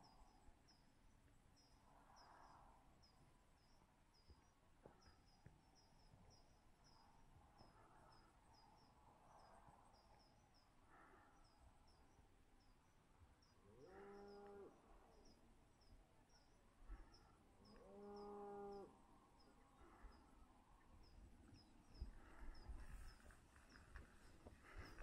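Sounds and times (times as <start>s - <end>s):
distant cattle mooing: 13.7s - 14.9s, 17.7s - 19.0s.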